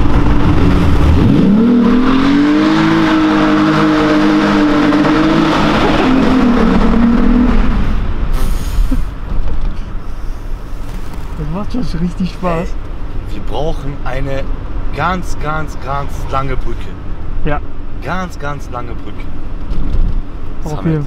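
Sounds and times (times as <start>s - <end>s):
car engine revving hard: 0.0s - 8.1s.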